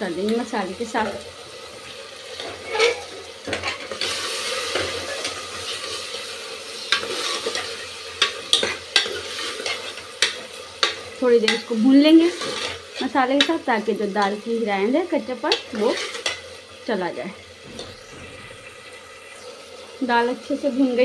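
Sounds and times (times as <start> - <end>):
masala sizzling in a pot: 0.0 - 21.0
ladle scraping and clinking pot: 2.4 - 5.4.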